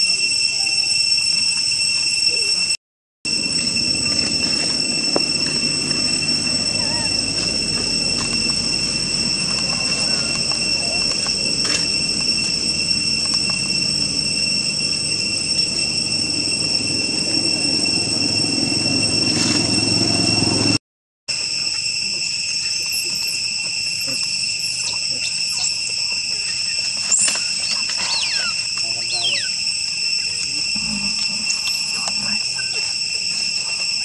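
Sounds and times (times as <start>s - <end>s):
high-pitched insect drone: 0.0s - 34.0s
low rumble: 3.3s - 20.8s
faint high squeaks: 3.4s - 20.3s, 22.0s - 34.0s.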